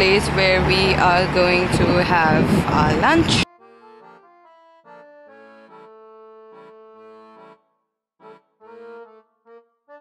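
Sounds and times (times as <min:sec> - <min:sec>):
reedy instrument playing chords: 0:03.4 - 0:10.0.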